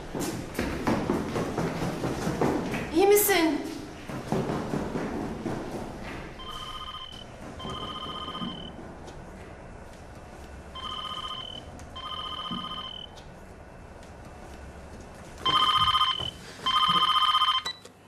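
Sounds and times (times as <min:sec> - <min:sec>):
telephone ringing: 0:06.4 - 0:08.8, 0:10.8 - 0:13.1, 0:15.4 - 0:17.8.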